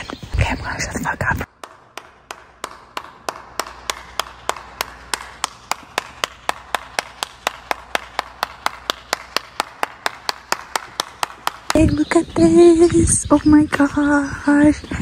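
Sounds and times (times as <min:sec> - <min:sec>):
person clapping hands: 0:01.6 - 0:12.1.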